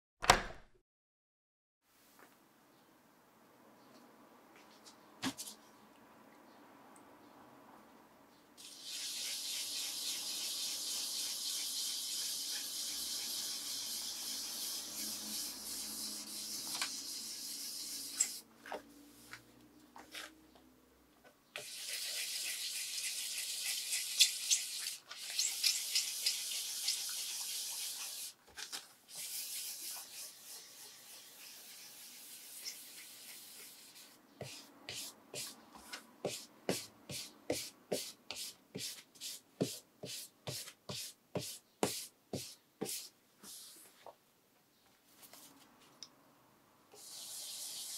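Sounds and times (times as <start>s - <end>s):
wet sandpaper rubbing: 8.6s - 18.4s, 29.1s - 35.6s.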